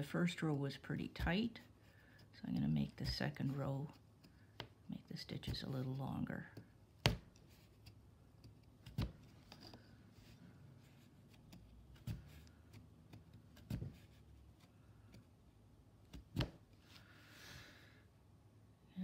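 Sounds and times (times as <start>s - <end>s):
punch needle popping through cloth: 6.5s - 9.3s.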